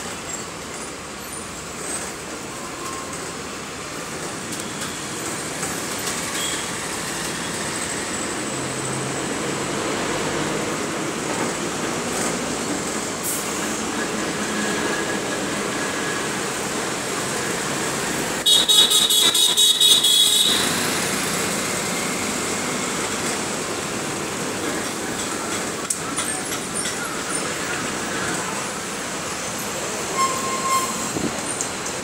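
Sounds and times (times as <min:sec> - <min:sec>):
bus engine and road noise: 0:00.0 - 0:32.0
vehicle horn stuttering: 0:18.4 - 0:20.8.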